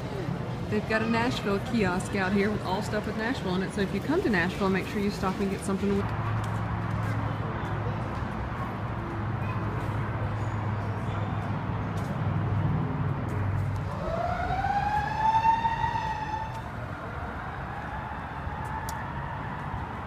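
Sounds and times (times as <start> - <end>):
siren wail: 13.8 - 20.0.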